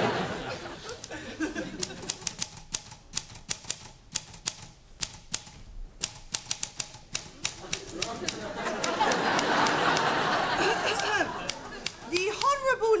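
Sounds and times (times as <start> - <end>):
typewriter keys clacking: 1.7 - 10.2, 11.0 - 12.8.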